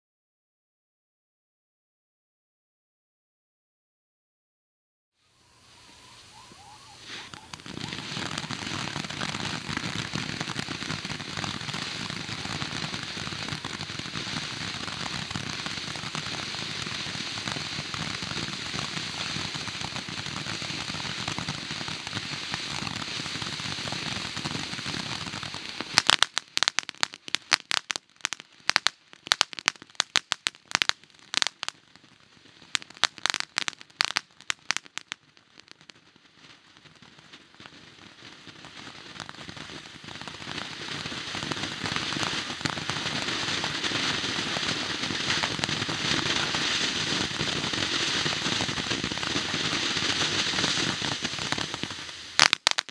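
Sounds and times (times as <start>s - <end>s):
firework fountain hissing: 5.2s - 52.9s
firework crackling pops: 5.5s - 52.9s.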